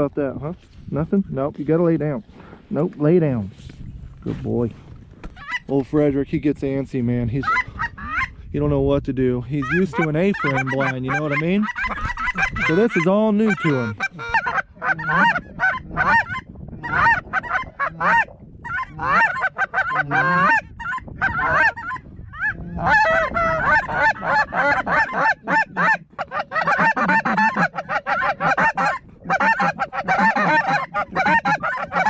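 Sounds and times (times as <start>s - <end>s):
geese honking: 9.6s - 32.0s.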